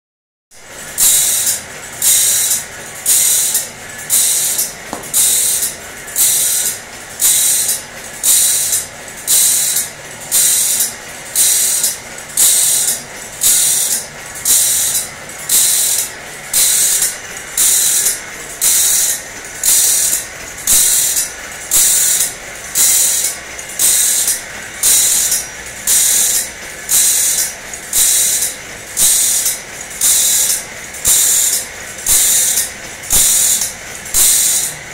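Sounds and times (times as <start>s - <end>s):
grinder grinding saw teeth: 1.0s - 34.8s.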